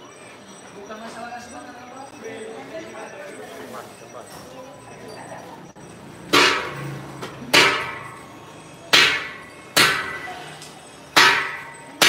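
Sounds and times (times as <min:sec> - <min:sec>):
sharp metallic clangs: 0:06.2 - 0:12.0.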